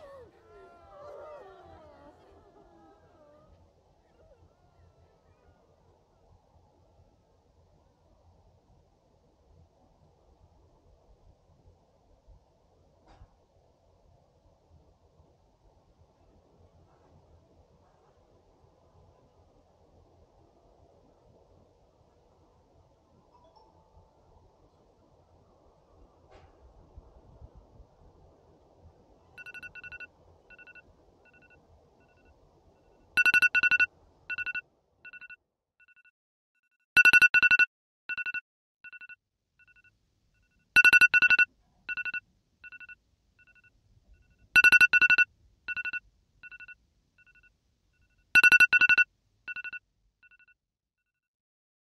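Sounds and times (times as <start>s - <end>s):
electronic alarm beeping: 29.4s - 31.5s, 33.2s - 36.0s, 37.0s - 39.8s, 40.8s - 43.7s, 44.6s - 47.4s, 48.4s - 50.5s.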